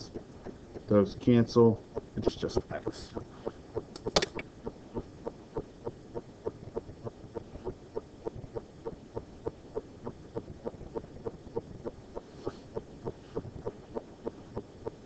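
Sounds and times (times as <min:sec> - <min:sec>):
soft ticking: 0:00.0 - 0:15.0
sharp click: 0:03.9 - 0:04.5.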